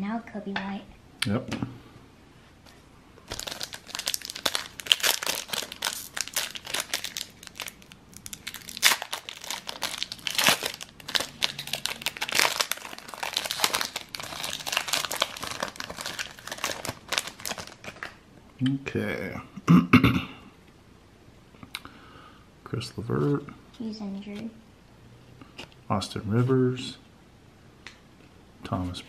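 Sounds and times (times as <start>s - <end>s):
foil wrapper crinkling and tearing: 3.3s - 18.2s.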